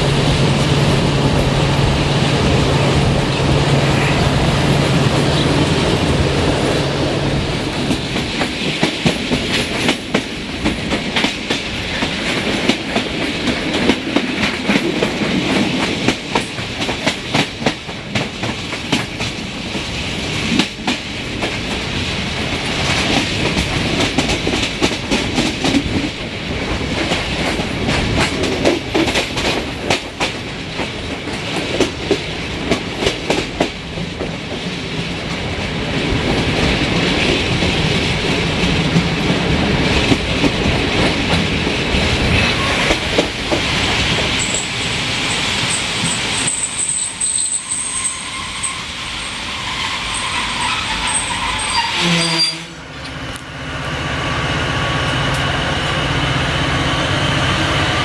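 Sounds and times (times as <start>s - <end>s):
rushing air: 0.0s - 16.8s
train rolling rumble: 0.0s - 58.0s
high wheel squeal: 44.4s - 52.8s.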